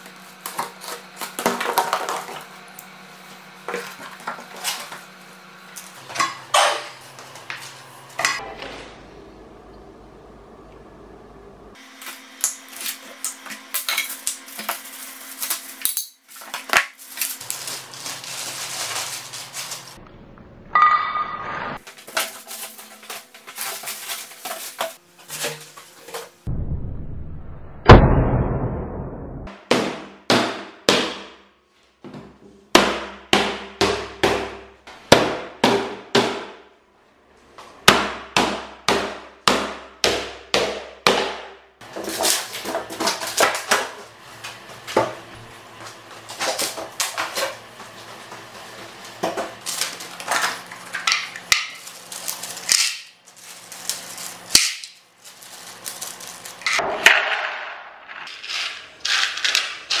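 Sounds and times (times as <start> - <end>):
hammer striking wooden crate: 29.6 - 31.4, 32.7 - 36.6, 37.9 - 41.6.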